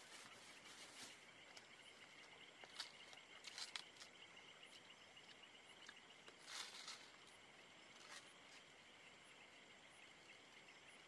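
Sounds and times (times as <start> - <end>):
insects chirping: 0.0 - 11.0.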